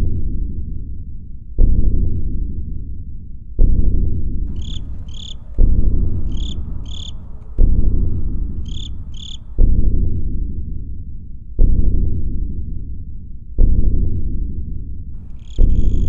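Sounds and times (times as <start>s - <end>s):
deep low boom: 3.6s - 10.4s, 13.6s - 16.0s.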